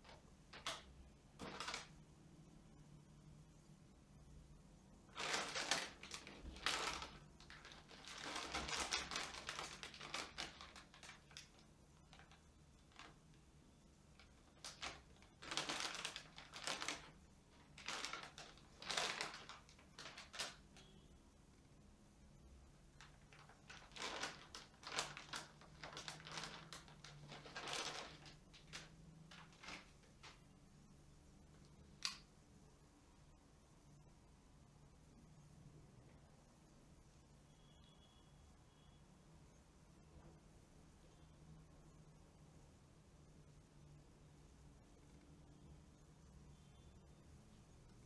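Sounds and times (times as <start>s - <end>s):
plastic chips packet crinkling: 0.0s - 2.0s, 5.1s - 13.2s, 14.1s - 20.9s, 23.0s - 30.4s.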